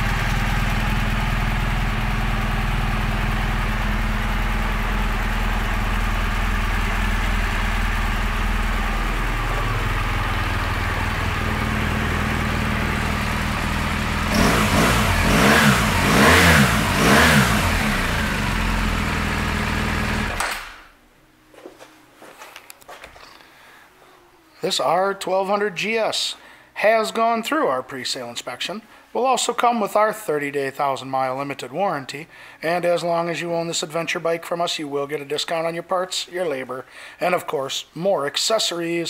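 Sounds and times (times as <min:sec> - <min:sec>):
motorcycle engine idling and revving: 0:00.0 - 0:20.8.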